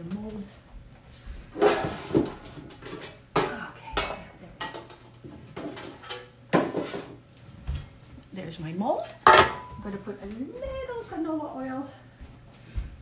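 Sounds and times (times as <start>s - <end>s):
baking pans clanking together: 1.6s - 7.1s, 9.2s - 9.8s.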